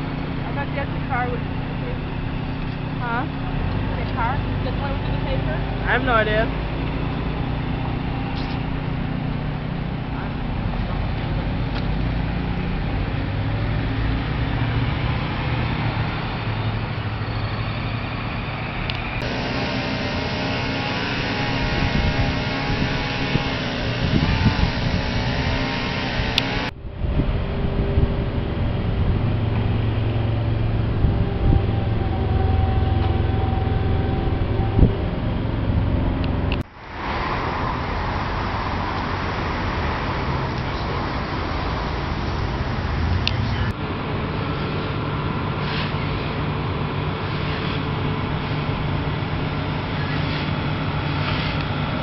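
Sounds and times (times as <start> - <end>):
car engine and road noise: 0.0 - 52.0
street noise: 0.0 - 52.0
outdoor noise hiss: 15.8 - 26.7, 36.6 - 52.0.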